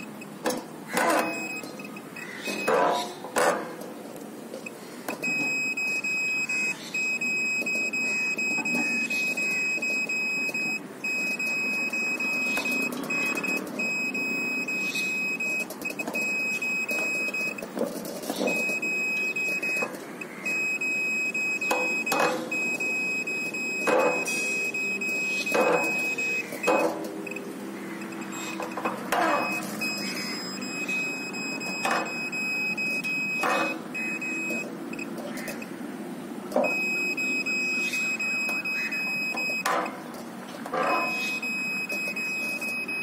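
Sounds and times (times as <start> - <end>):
high steady beep tone: 5.1 - 17.7, 18.5 - 35.1, 36.6 - 39.8, 40.9 - 43.0.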